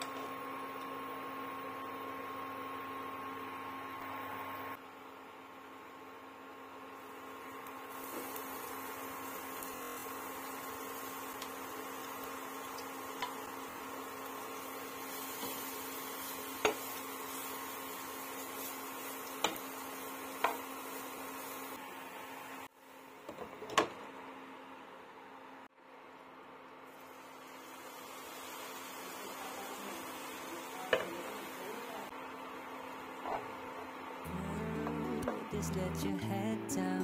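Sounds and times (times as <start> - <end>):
cooktop humming: 0.0 - 37.0
faint hiss of cooking: 5.7 - 23.4, 26.7 - 37.0.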